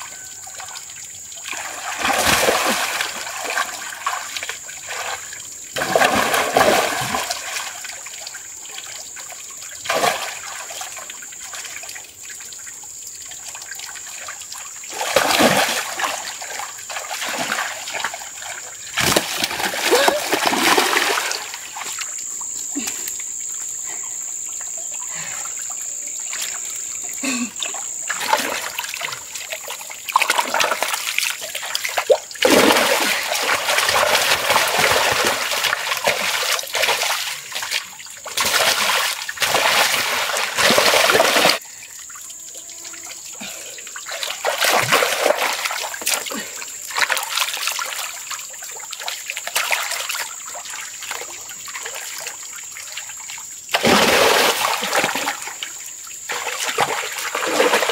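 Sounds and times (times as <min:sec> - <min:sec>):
muddy water splashing: 0:00.5 - 0:12.4, 0:13.4 - 0:23.2, 0:23.8 - 0:41.7, 0:43.4 - 0:57.9.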